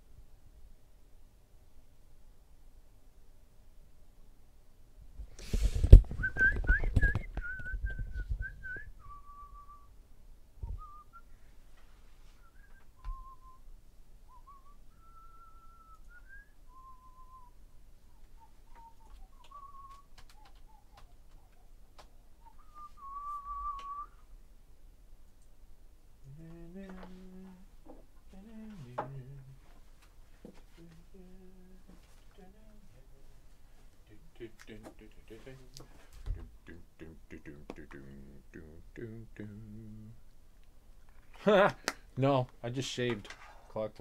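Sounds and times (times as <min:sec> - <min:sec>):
person whistling a slow tune: 0:06.2 - 0:09.9, 0:10.6 - 0:11.3, 0:12.3 - 0:13.6, 0:14.3 - 0:17.6, 0:18.4 - 0:21.1, 0:22.4 - 0:24.2.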